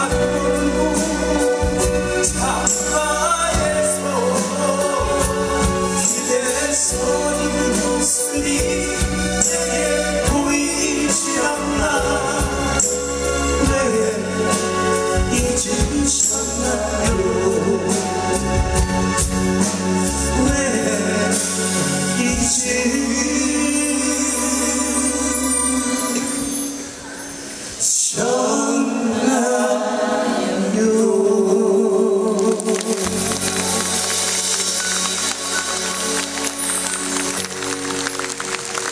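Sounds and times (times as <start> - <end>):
bass guitar: 0.0 - 25.9
man singing: 0.0 - 26.7, 27.8 - 30.0, 30.6 - 35.0
full band playing: 0.0 - 38.9.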